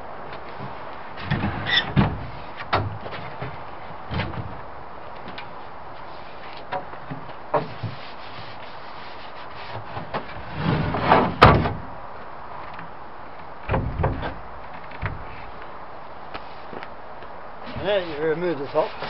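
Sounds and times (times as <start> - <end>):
wooden panels knocking and scraping: 6.6 - 8.5, 9.6 - 11.9, 13.7 - 15.5
loud wooden bang: 10.9 - 11.9, 13.7 - 14.4.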